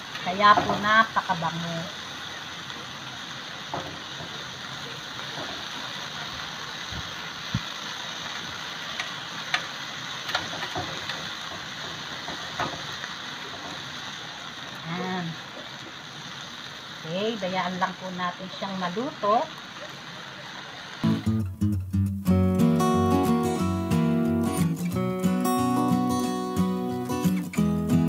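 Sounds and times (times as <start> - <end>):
charcoal crackles and pops: 0.0 - 18.2
meat sizzling on a grill: 0.0 - 21.4, 22.3 - 28.0.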